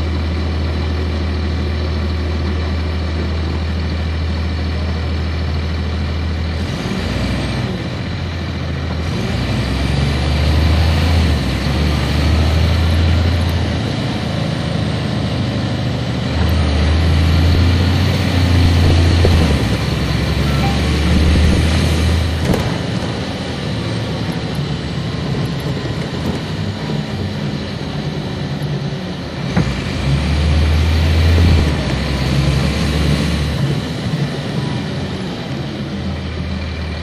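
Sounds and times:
bus diesel engine accelerating: 0.0 - 37.0
high whine climbing: 16.2 - 28.5.

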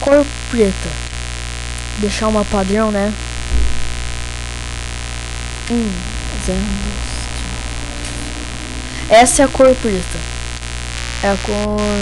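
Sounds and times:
electrical mains hum: 0.0 - 12.0
static hiss: 0.0 - 12.0
low thump: 3.4 - 4.3.

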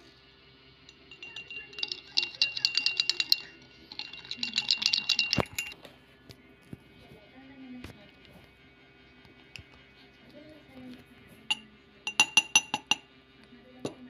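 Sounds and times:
teaspoon clinking in a glass: 0.9 - 5.8, 11.5 - 13.0.

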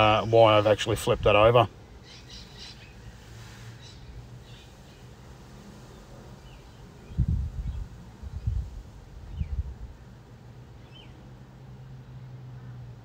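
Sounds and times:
faint bird chirps: 2.0 - 5.1.

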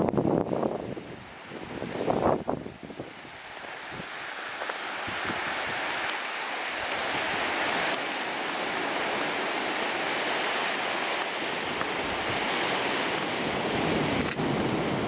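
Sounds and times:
surf washing over rocks: 0.0 - 15.0
waterfall rushing: 0.6 - 15.0.

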